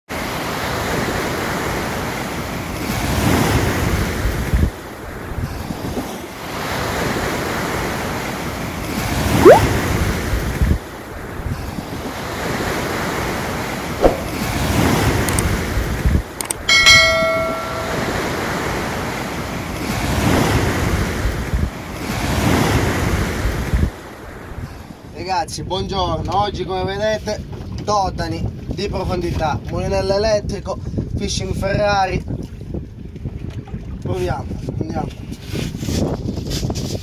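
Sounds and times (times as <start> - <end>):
wind: 0.1 - 37.0
sea waves washing: 0.2 - 24.5
short rising whistle-like tone: 9.4 - 9.8.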